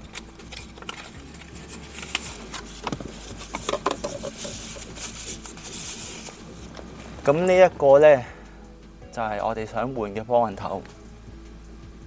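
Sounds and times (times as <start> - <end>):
tissue paper crinkling: 0.0 - 7.2.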